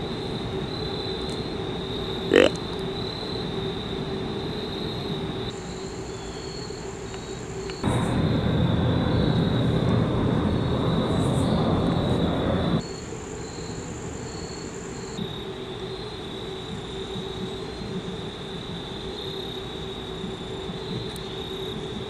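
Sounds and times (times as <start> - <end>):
insects trilling: 0.0 - 22.0
loud low rumble: 7.8 - 12.8.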